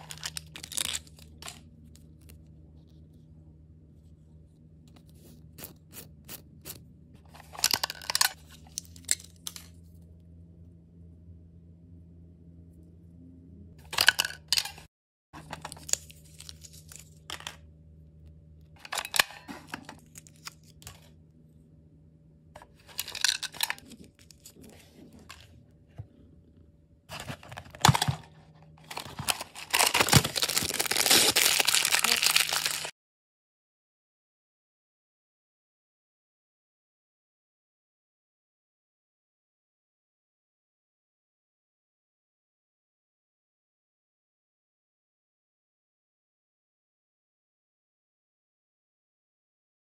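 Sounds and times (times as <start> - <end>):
plastic wrapper ripping: 0.0 - 1.6, 28.8 - 32.9.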